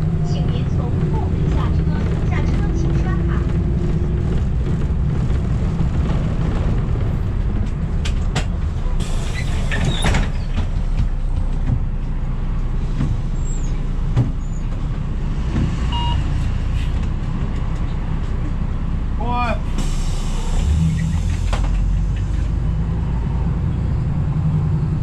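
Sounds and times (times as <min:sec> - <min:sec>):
bus low rumble: 0:00.0 - 0:25.0
air brake hiss: 0:19.8 - 0:21.4.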